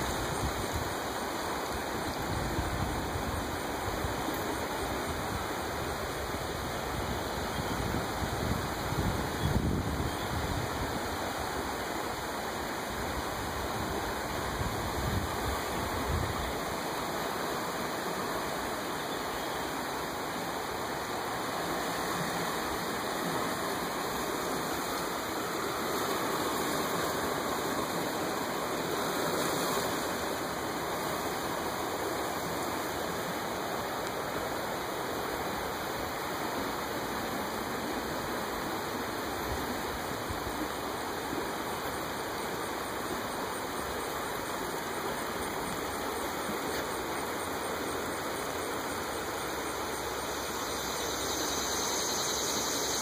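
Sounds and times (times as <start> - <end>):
river water rushing: 0.0 - 53.0.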